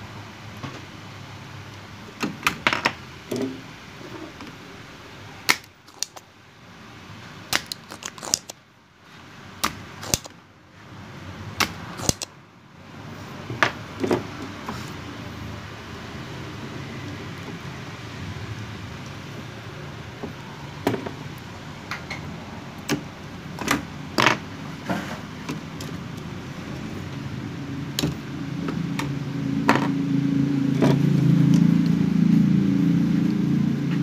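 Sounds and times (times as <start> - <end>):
low steady background noise: 0.0 - 34.0
clicks and knocks of circuit board handling: 9.6 - 10.4.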